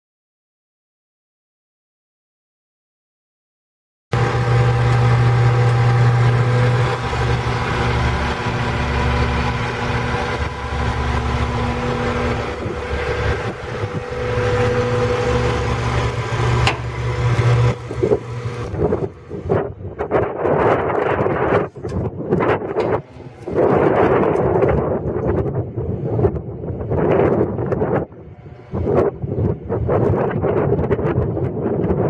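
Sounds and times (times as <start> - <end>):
diesel engine idling: 4.2 - 26.8.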